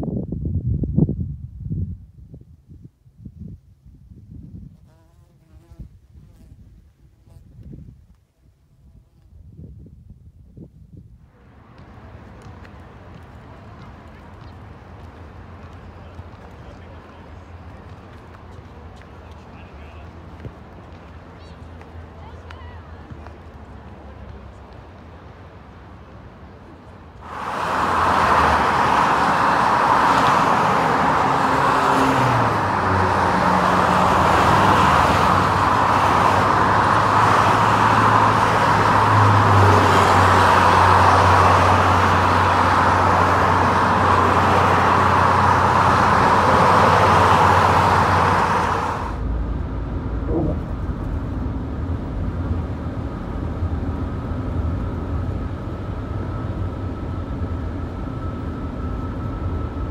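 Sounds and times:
freeway traffic tyre roar: 11.2s - 59.9s
road rumble inside moving car: 11.2s - 59.9s
low hum: 48.9s - 59.9s.

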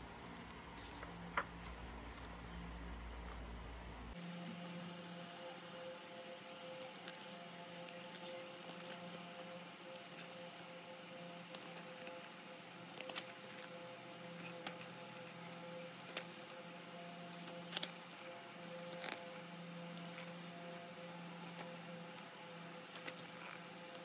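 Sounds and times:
low hum and hiss: 0.0s - 24.0s
pages turning: 6.7s - 10.7s, 11.4s - 16.6s, 17.3s - 20.5s, 21.3s - 24.0s.

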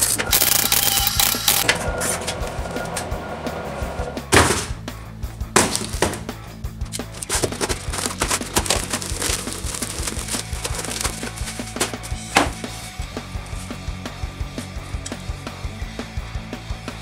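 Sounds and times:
background music: 0.0s - 17.0s
tape tearing: 6.9s - 12.9s
plastic wrap crinkling: 7.0s - 12.3s
cardboard flaps ripping: 7.0s - 12.8s.

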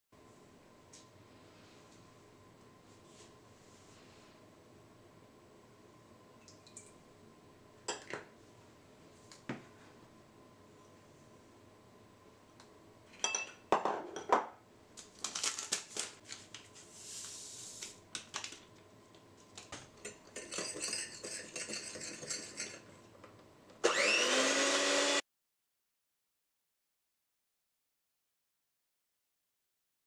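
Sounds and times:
electric hand mixer motor whine: 23.8s - 25.2s.

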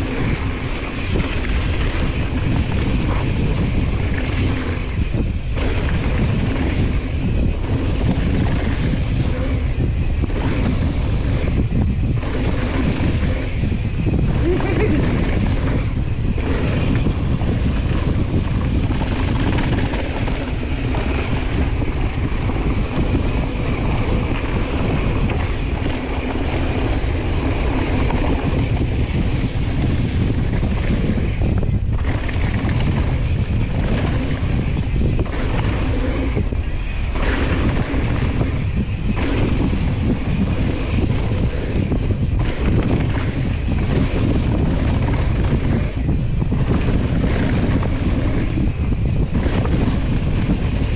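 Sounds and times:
wind buffeting microphone: 0.0s - 50.9s.

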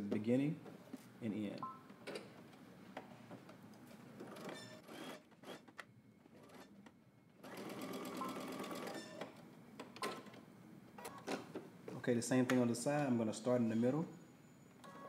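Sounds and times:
electric sewing machine stitching: 4.4s - 5.6s, 7.4s - 9.0s.

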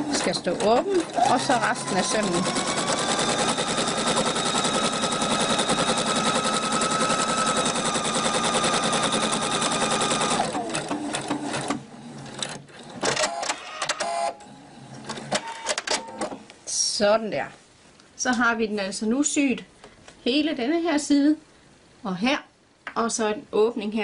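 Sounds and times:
sewing machine sewing: 0.0s - 14.3s.

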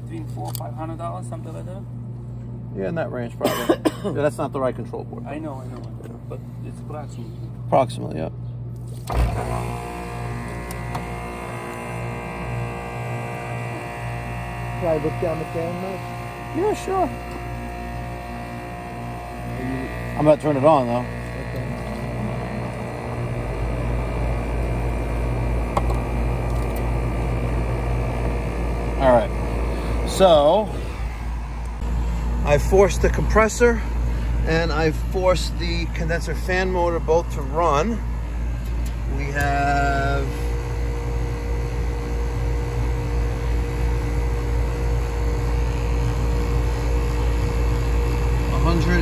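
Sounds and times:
heat pump humming: 0.0s - 49.0s
heat pump click: 8.9s - 15.1s, 16.0s - 23.1s, 23.8s - 27.4s, 34.8s - 49.0s.

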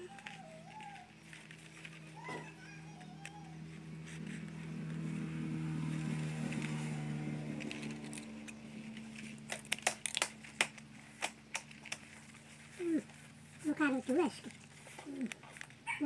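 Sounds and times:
motor engine hum: 0.0s - 16.0s
scissors snipping: 6.0s - 12.2s.

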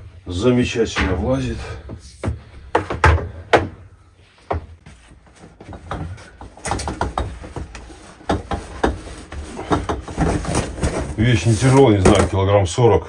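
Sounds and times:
objects being moved about: 4.3s - 12.4s.

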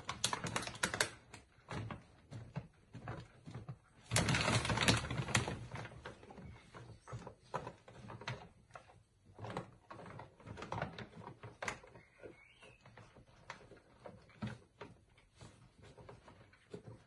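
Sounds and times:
bag crinkling: 4.0s - 6.1s.

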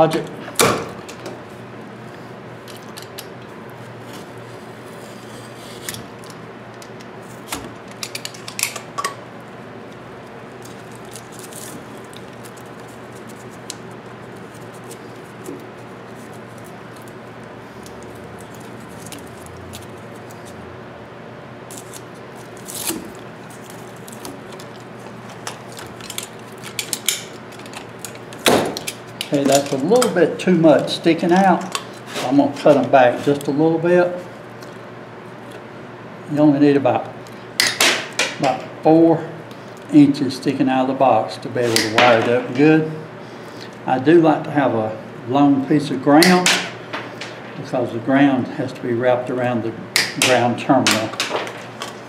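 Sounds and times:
steady low hum: 0.0s - 52.0s
electrical cable rustling and clicking: 9.9s - 20.6s, 21.7s - 30.2s, 50.0s - 52.0s.

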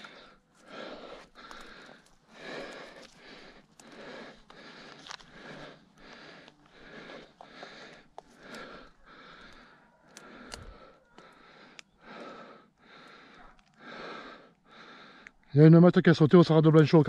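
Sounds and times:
man breathing hard: 0.0s - 15.5s
small clicks and rustles: 13.1s - 13.8s.

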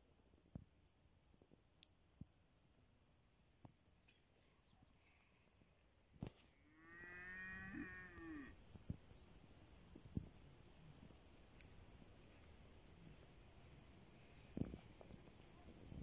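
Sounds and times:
faint cow mooing: 6.7s - 8.6s.

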